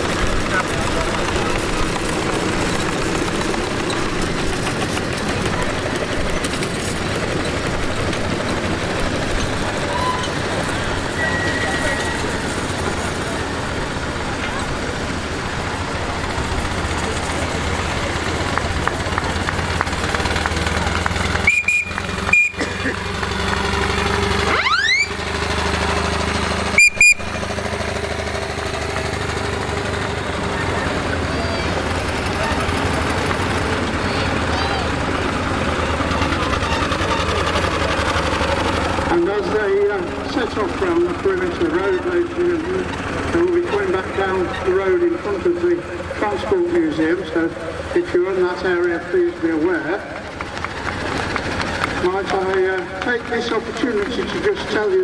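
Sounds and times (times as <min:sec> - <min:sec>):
steam vehicles running and clattering: 0:00.0 - 0:55.0
steam whistle toots: 0:11.1 - 0:12.4, 0:21.4 - 0:22.6, 0:26.7 - 0:27.2.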